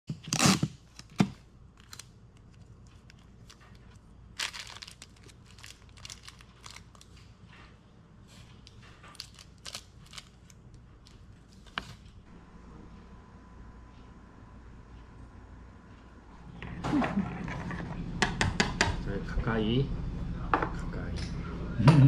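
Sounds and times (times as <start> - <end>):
tape pulled off dispenser: 0.1 - 2.0
paper and wrappers rustling: 0.9 - 7.4, 8.3 - 12.0.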